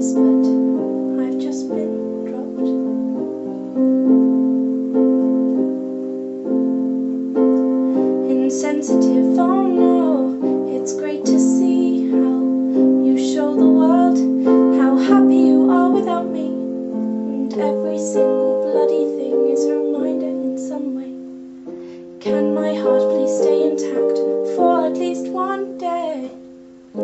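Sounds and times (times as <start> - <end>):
woman singing: 0.0 - 3.0, 7.9 - 21.3, 22.2 - 27.0
slow piano chords: 0.0 - 27.0.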